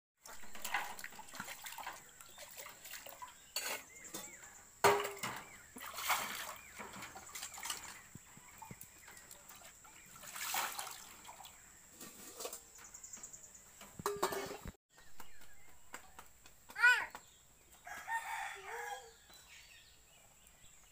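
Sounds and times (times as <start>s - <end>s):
water sloshing and splashing: 0.2s - 12.6s.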